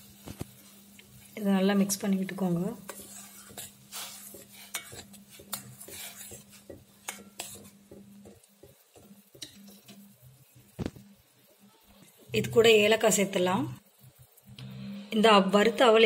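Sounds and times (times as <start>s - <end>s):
utensil scraping pan: 0.2s - 10.8s.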